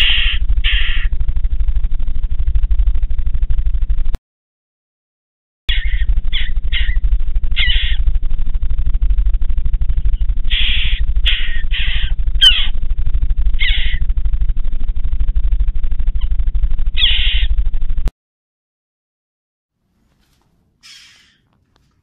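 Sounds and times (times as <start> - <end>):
jackdaws calling: 0.0 - 1.2, 5.7 - 8.2, 10.0 - 14.2, 16.9 - 17.6, 20.8 - 21.5
low steady hum: 0.0 - 4.2, 5.7 - 18.1.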